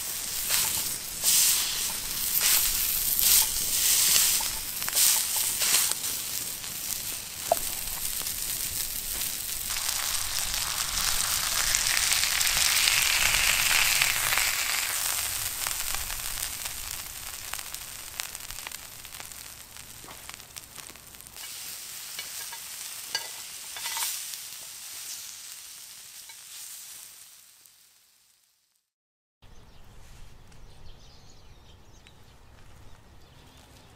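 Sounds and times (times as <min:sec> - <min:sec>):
patty sizzling in a grill pan: 0:00.0 - 0:28.9.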